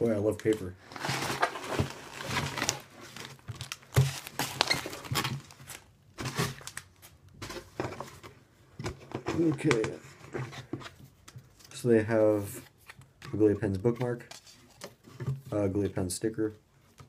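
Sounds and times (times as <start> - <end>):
packing paper crinkling: 0.8 - 7.2.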